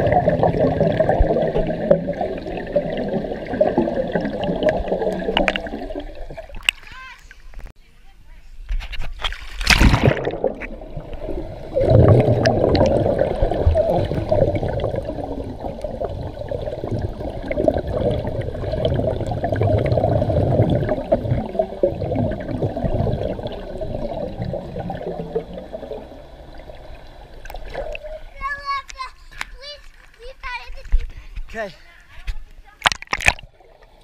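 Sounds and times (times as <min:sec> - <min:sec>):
muffled underwater bubbles churning: 0:00.0 - 0:06.7, 0:09.7 - 0:28.4.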